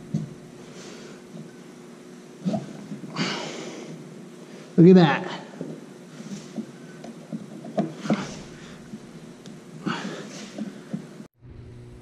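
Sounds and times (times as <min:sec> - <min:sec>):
man breathing hard: 0:03.0 - 0:04.8, 0:09.8 - 0:11.2.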